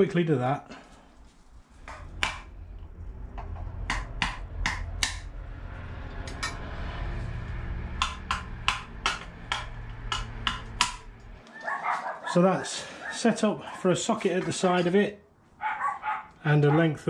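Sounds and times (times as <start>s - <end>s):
steady low hum: 0.0s - 11.4s
hammer knocking on metal: 1.8s - 2.5s, 3.8s - 5.2s, 7.9s - 11.2s.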